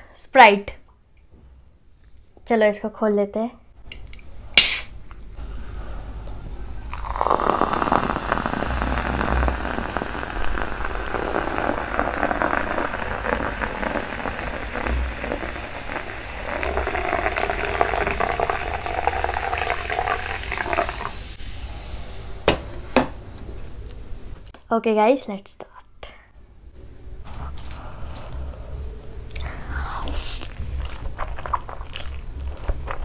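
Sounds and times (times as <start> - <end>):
sharp knock: 4.6 - 4.9
soda pouring and fizzing: 6.7 - 21.4.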